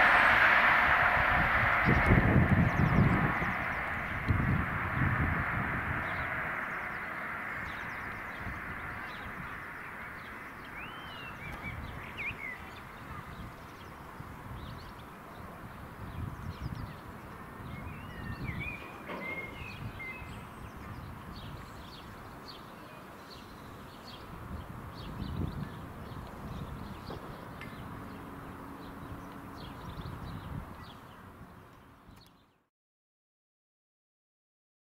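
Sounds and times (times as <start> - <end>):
train running rumble: 0.0 - 12.0
small birds chirping: 6.0 - 32.6.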